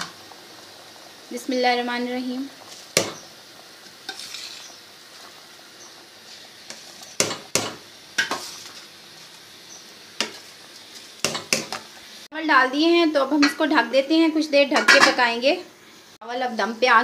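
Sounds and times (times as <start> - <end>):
simmering hiss: 0.0 - 17.0
rice poured into a pot: 3.9 - 7.1.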